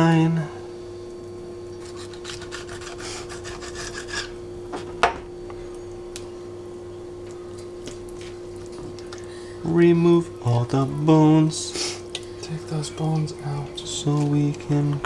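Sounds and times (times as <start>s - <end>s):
steady low hum: 0.0s - 15.0s
knife slicing raw fish: 1.8s - 4.3s.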